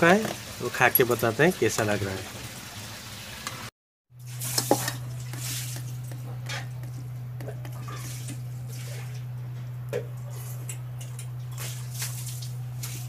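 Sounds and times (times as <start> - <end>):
low electrical hum: 4.2 - 13.0
rice squishing by hand: 4.3 - 9.2.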